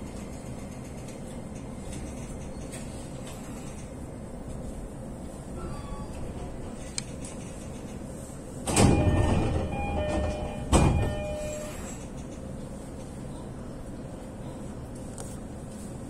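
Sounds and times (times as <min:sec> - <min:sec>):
train low background hum: 0:00.0 - 0:16.0
ringing tones: 0:08.8 - 0:11.9.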